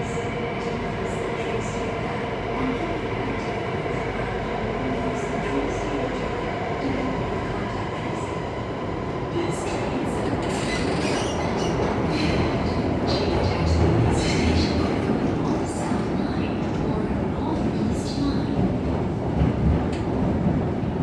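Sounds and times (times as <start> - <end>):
train wheels rumbling on rail: 9.4 - 21.0.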